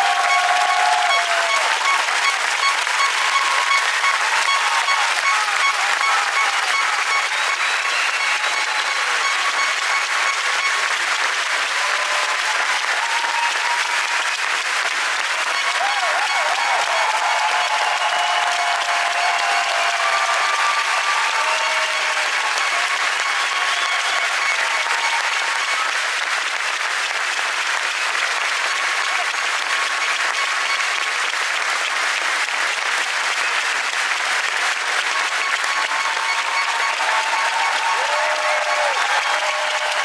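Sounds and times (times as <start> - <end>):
large crowd applauding: 0.0 - 40.0.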